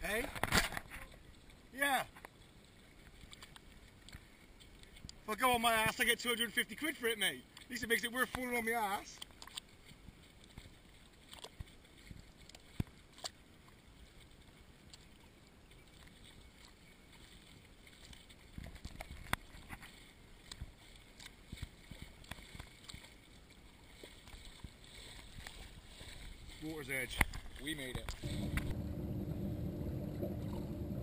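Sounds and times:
boots walking through wet mud: 3.0s - 28.8s
low rumble: 28.2s - 31.0s.

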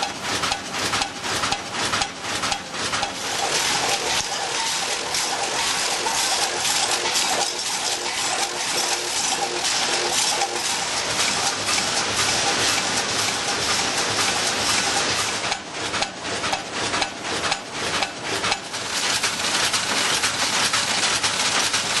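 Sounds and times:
rapid machine clicking: 0.0s - 22.0s
potato chips clattering in weigher: 3.1s - 15.4s, 18.7s - 22.0s.

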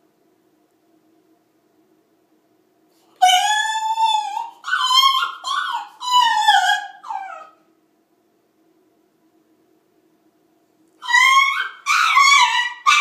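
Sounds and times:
puppy howling: 3.2s - 7.6s, 11.0s - 13.0s.

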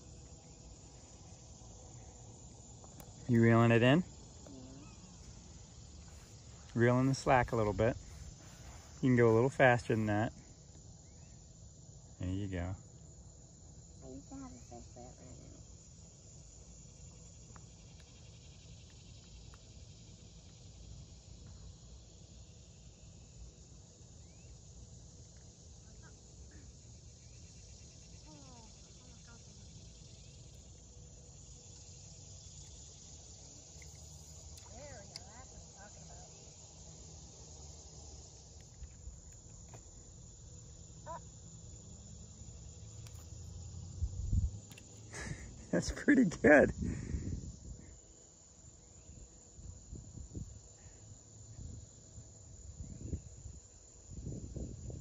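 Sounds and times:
crickets chirring: 0.0s - 55.0s
insect chorus: 0.0s - 55.0s
faint ticks: 17.4s - 18.2s, 33.7s - 35.4s.

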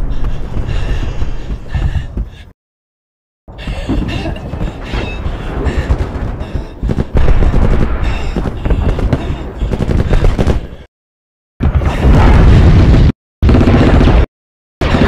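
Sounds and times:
rumbling explosions: 3.8s - 10.9s, 11.6s - 15.0s.

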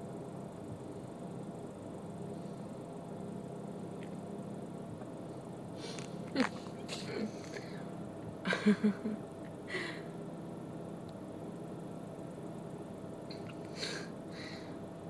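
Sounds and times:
low hum: 0.0s - 15.0s
person laughing breathily: 8.5s - 10.1s.

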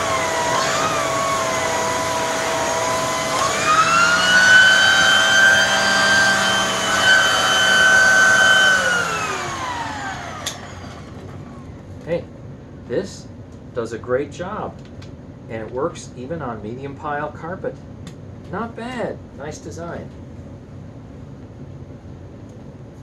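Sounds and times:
vacuum cleaner motor whine: 0.0s - 11.8s.

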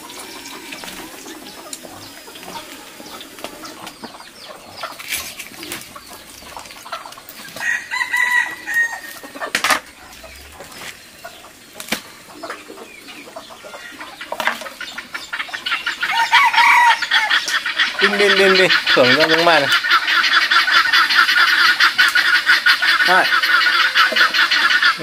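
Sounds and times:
chickens clucking: 0.0s - 25.0s
rooster crowing: 7.6s - 9.5s, 16.0s - 18.3s.

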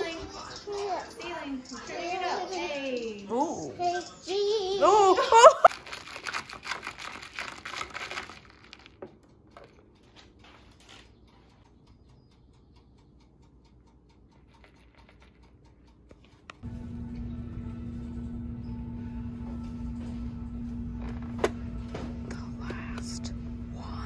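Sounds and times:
rapid light clicking: 9.1s - 16.6s
music with low note: 16.6s - 24.0s.

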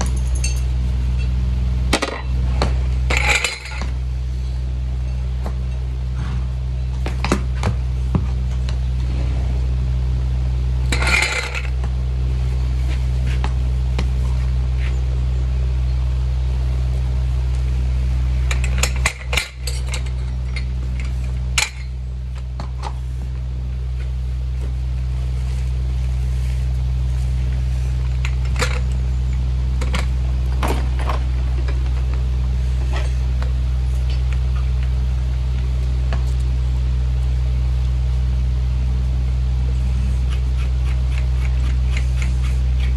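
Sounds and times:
metal tools clinking: 0.0s - 1.4s, 3.1s - 3.9s, 18.5s - 22.0s
steady low hum: 0.0s - 42.9s.

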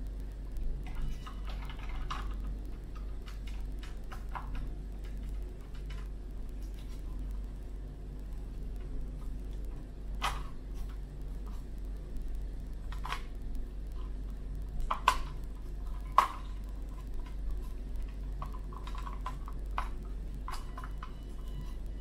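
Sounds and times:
toy car plastic clicks and knocks: 14.9s - 16.6s.

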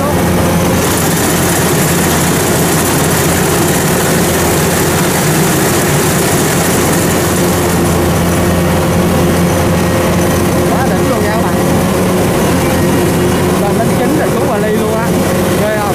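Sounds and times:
combine harvester engine drone: 0.0s - 15.9s
header and cutter bar clatter: 0.7s - 8.2s.

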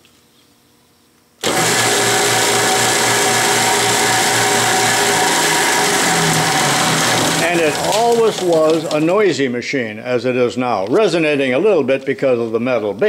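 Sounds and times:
belt sander running: 1.4s - 9.1s.

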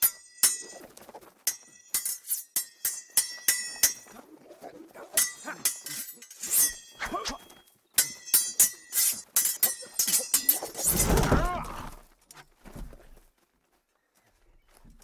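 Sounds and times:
sword blades clashing: 1.5s - 4.2s, 5.1s - 7.4s, 8.0s - 11.5s.

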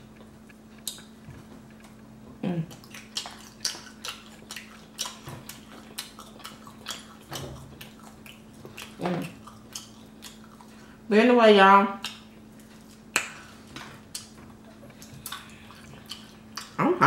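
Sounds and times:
steady low hum: 0.0s - 17.0s
wet chewing clicks and smacks: 2.7s - 10.8s, 12.0s - 13.5s, 14.1s - 16.8s.

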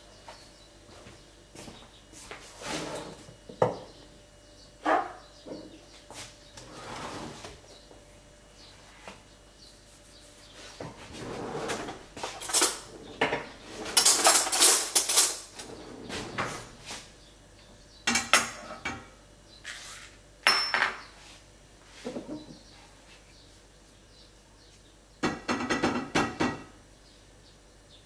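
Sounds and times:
dishes and cutlery clattering: 12.3s - 15.5s, 20.5s - 21.1s.

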